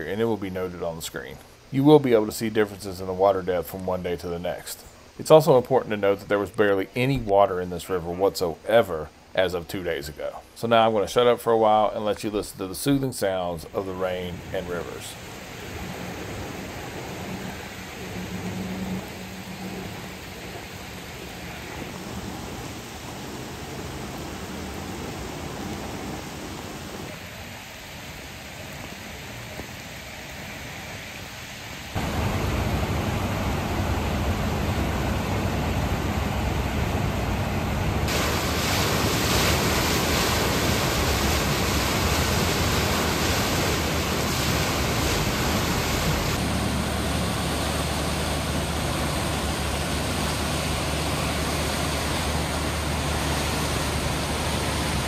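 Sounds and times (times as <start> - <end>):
flooded river rushing: 0.0 - 55.0
rain: 0.0 - 55.0
storm drain pouring: 32.0 - 55.0.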